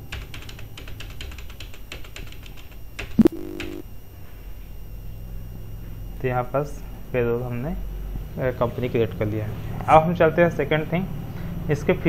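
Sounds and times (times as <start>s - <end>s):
short low tone: 3.2s - 3.8s.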